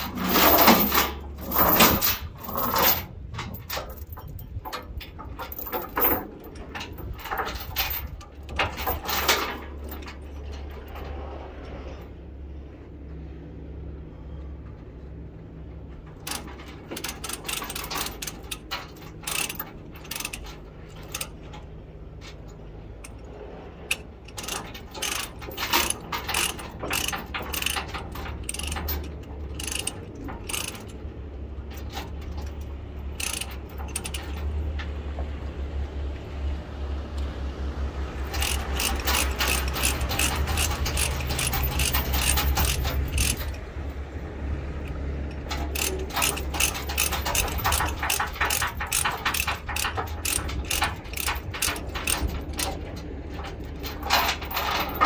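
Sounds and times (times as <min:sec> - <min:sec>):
low steady rumble: 0:00.0 - 0:55.0
ratchet clicks: 0:16.2 - 0:21.6, 0:23.9 - 0:31.0, 0:31.7 - 0:34.8, 0:38.2 - 0:43.6, 0:44.8 - 0:55.0.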